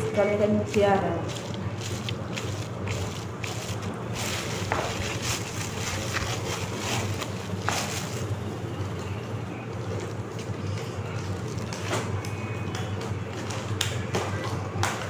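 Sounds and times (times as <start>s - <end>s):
steady low hum: 0.0s - 15.0s
plastic bag crinkling: 1.1s - 12.3s.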